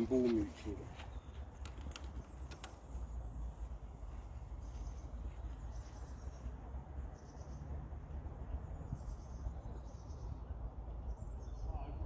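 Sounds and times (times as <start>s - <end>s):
faint clicks: 1.6s - 2.8s.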